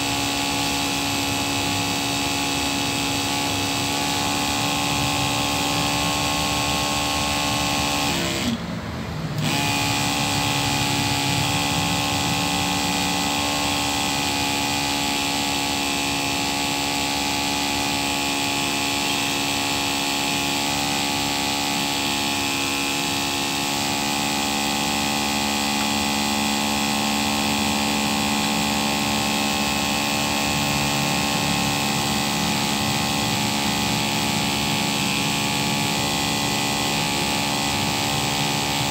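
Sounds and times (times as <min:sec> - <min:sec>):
pump motor humming: 0:00.0 - 0:38.9.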